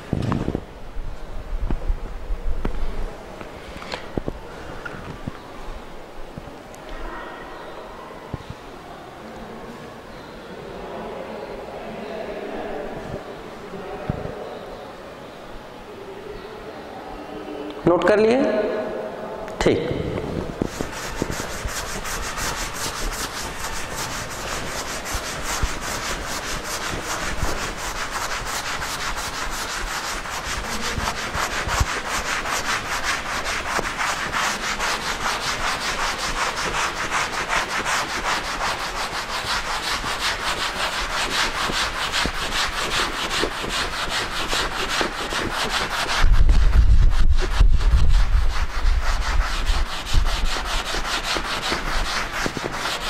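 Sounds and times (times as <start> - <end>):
duster rubbing on blackboard: 20.4 - 53.0.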